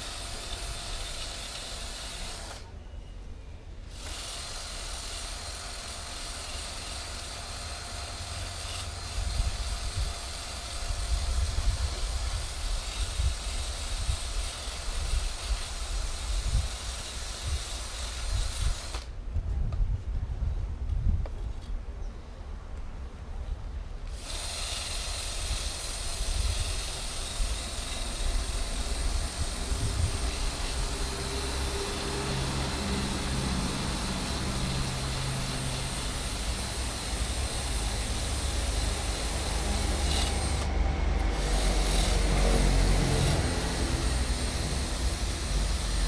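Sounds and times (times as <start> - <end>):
low traffic rumble: 0.0 - 46.0
vehicle engine passing: 29.6 - 36.4, 37.6 - 46.0.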